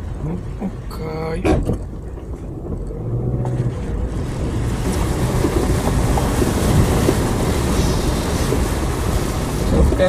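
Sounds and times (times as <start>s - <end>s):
vehicle engine hum: 0.0s - 10.0s
water splashing: 0.0s - 10.0s
rushing noise: 3.6s - 10.0s.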